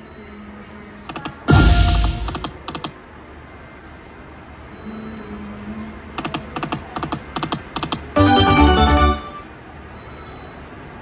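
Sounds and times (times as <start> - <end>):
slot machine sound effects: 1.4 - 2.7, 8.1 - 9.6.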